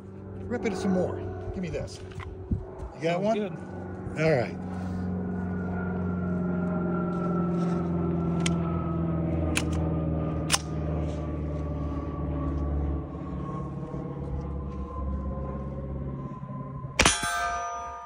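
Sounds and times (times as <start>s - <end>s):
low drone with falling tone: 0.0s - 18.0s
steel target clanging: 17.0s - 18.0s.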